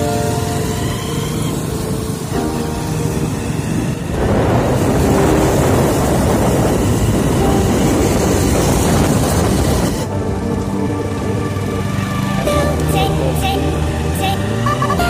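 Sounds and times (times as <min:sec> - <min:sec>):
wind rushing on microphone: 0:00.0 - 0:11.7
motorcycle engine at speed: 0:00.0 - 0:15.0.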